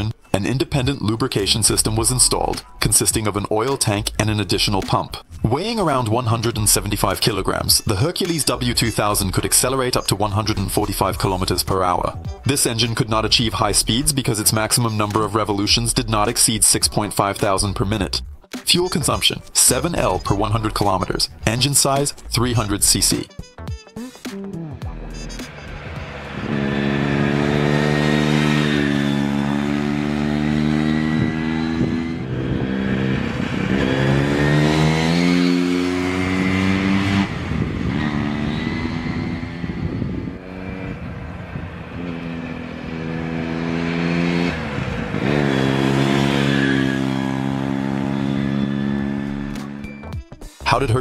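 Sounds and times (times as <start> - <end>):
rotary engine revving: 25.1 - 50.0.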